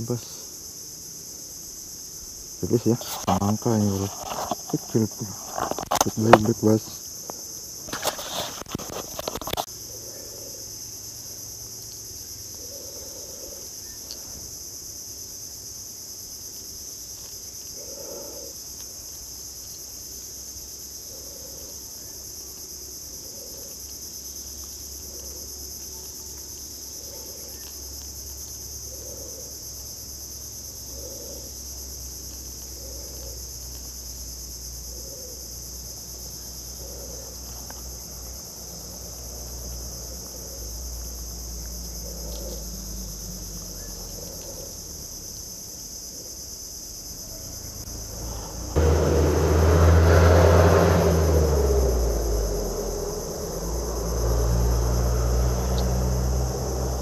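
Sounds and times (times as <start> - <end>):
insects droning: 0.0 - 57.0
knocks and rustles: 3.0 - 6.6, 7.8 - 9.7.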